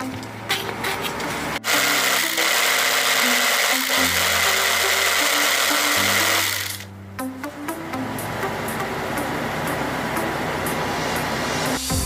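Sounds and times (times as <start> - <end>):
demolition breaker motor running: 1.6 - 6.9
high whine: 3.6 - 12.0.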